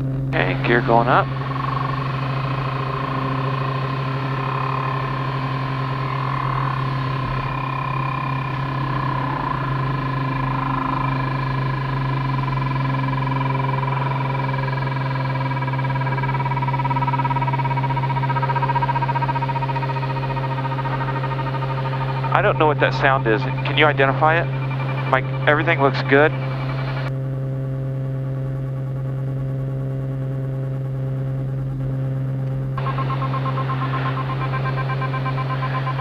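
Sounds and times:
aircraft engine drone: 0.0s - 36.0s
pilot speaking: 0.3s - 10.2s, 22.1s - 27.0s
mechanical tone dropping in pitch: 0.3s - 27.1s, 32.8s - 36.0s.

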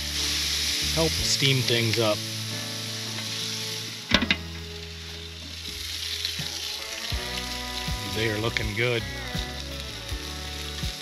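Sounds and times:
patties sizzling on grill: 0.0s - 11.0s
metal grill lid clank: 4.1s - 4.6s.

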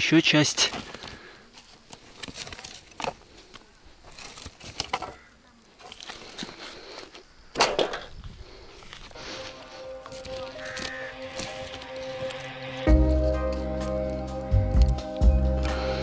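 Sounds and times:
rubbish being handled: 0.5s - 15.2s
footsteps: 5.8s - 15.4s.

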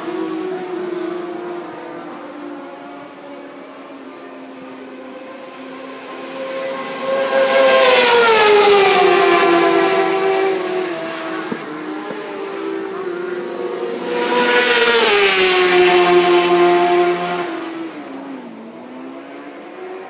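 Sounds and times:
superbike engines passing at speed: 5.2s - 20.0s.

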